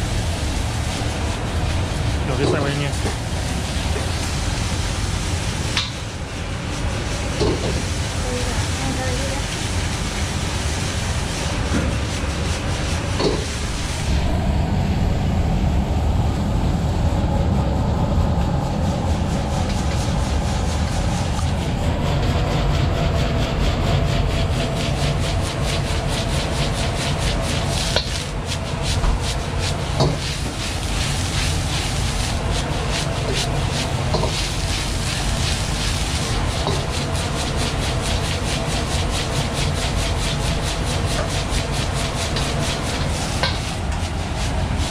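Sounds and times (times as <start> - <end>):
gas burner roaring: 0.0 - 44.9.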